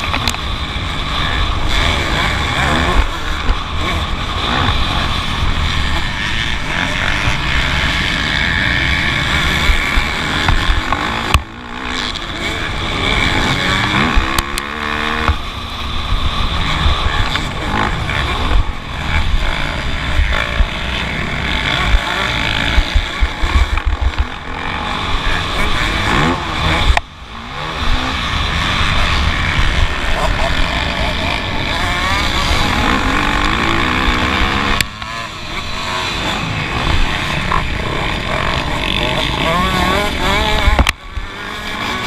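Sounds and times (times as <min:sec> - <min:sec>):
motocross bike engine revving: 0:00.0 - 0:42.0.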